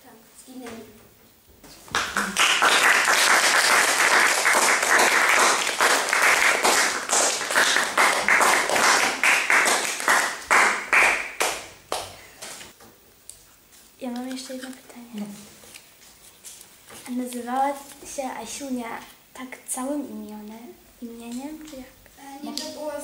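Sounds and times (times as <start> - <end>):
audience applauding: 1.9 - 12.1.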